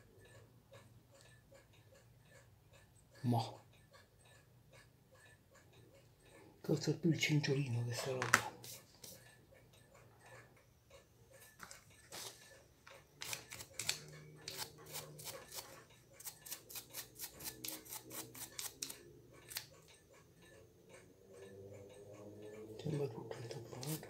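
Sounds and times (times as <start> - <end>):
brush scrubbing metal: 14.5 - 18.9.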